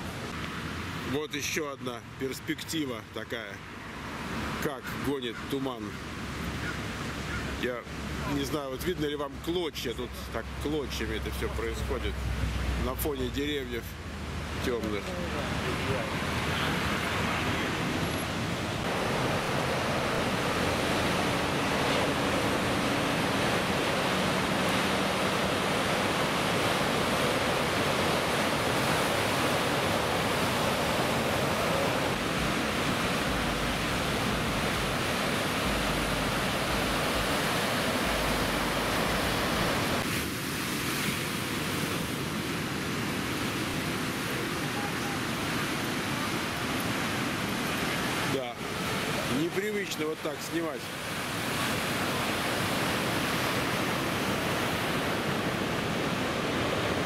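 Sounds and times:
heavy ocean surf breaking: 0.0s - 57.0s
car passing: 14.0s - 40.0s.

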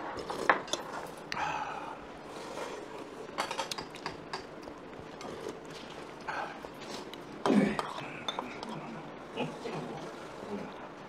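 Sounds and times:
cutlery clinking on bowls: 0.2s - 1.1s, 3.4s - 4.6s, 7.4s - 8.9s.

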